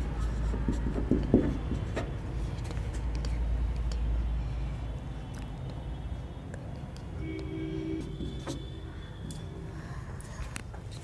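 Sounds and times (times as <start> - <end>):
marker pen writing on whiteboard: 0.0 - 4.2, 6.6 - 9.1.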